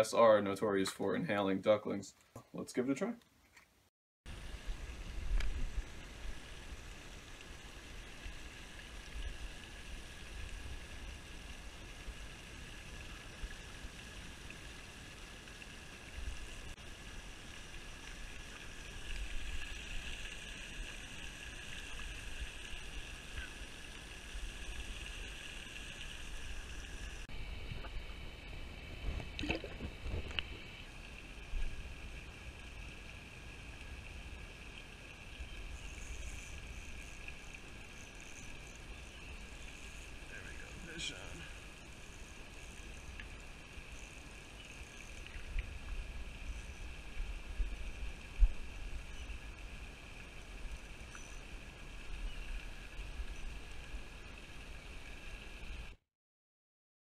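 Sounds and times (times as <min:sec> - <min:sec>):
wind rumble on microphone: 0:04.3 - 0:06.7, 0:26.4 - 0:30.8
fountain splashing water: 0:04.3 - 0:56.0.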